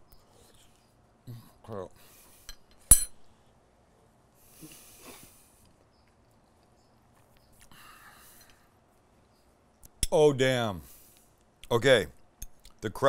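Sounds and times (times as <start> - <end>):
soft breathing: 7.6 - 9.4.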